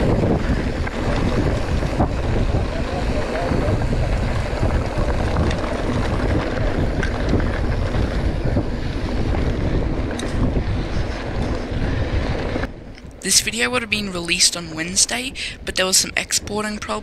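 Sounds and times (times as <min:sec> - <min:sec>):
bike tyres rumbling on dirt: 0:00.0 - 0:12.8
bike rattles and clicks: 0:00.0 - 0:13.2
wind buffeting microphone: 0:00.0 - 0:17.0.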